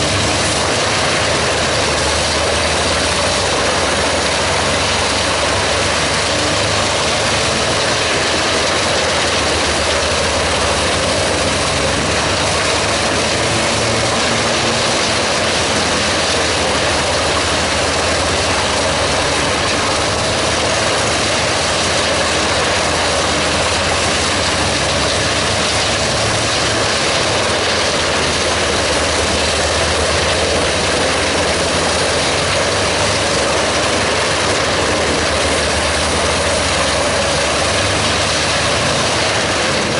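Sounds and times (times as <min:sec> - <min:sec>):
wood chipper engine and chipping: 0:00.0 - 0:39.9.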